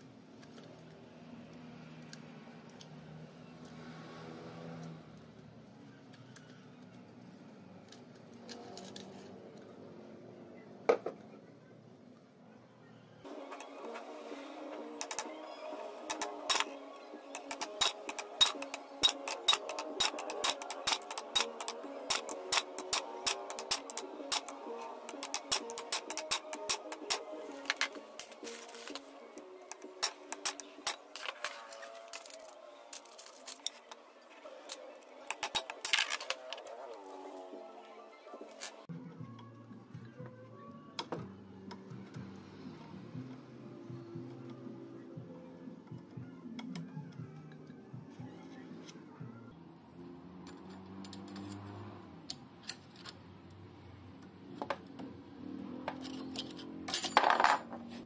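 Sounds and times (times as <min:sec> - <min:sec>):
background music: 0:12.8 - 0:58.0
steel rod tapping metal gear: 0:17.3 - 0:27.2.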